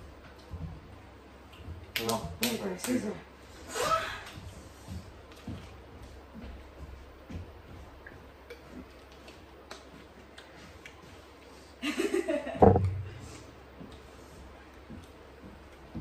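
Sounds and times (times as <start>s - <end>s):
loud thump: 12.6s - 13.4s
faint clicks and taps: 13.8s - 16.0s.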